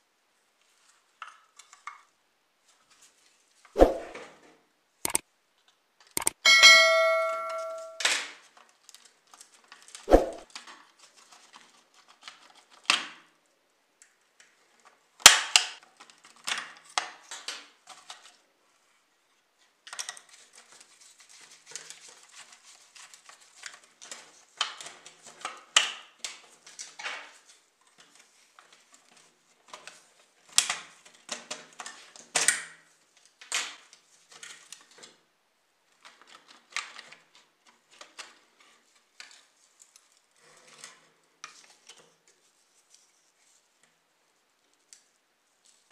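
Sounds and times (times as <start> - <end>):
clicks and taps on model car: 29.6 - 35.2.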